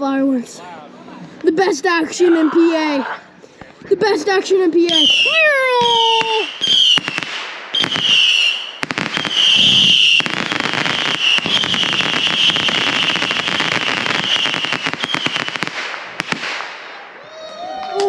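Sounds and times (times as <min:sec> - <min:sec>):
fireworks crackling and popping: 0:03.6 - 0:18.0
firework whistle: 0:04.9 - 0:15.6.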